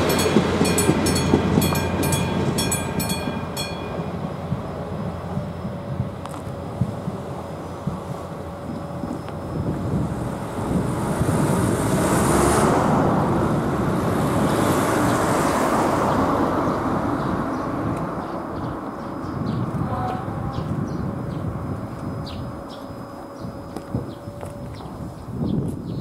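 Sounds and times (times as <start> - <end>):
cars driving past: 9.7 - 19.5.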